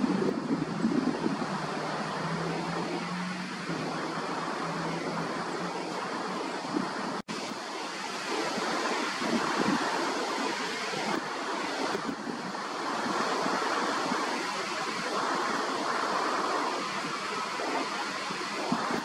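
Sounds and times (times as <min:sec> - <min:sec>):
rushing flowing water: 0:00.0 - 0:19.0.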